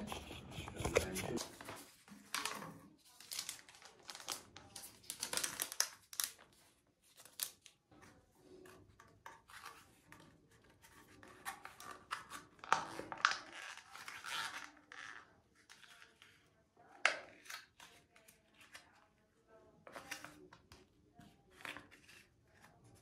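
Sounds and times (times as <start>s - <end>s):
packaging crinkling and tearing: 2.3s - 7.8s.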